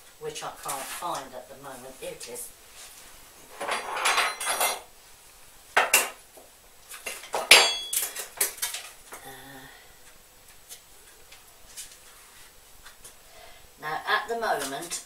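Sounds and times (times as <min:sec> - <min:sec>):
scraping rustle: 0:00.6 - 0:04.8
spoon and crockery clattering: 0:03.6 - 0:04.9, 0:07.1 - 0:08.9.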